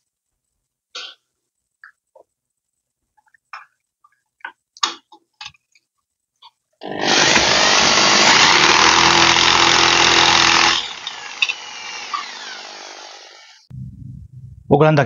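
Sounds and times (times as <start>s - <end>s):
electric drill boring into wall: 6.8s - 13.7s.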